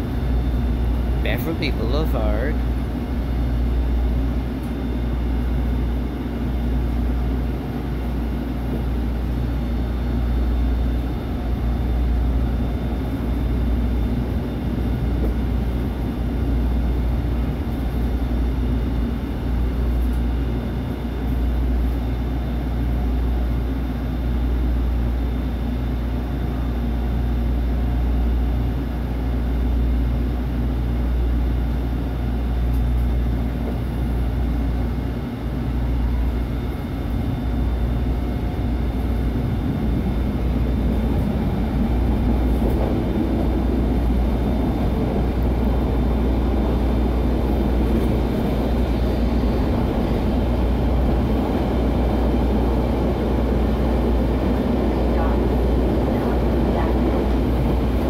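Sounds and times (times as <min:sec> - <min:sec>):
trolley wheels rumbling on rails: 0:39.0 - 0:58.0.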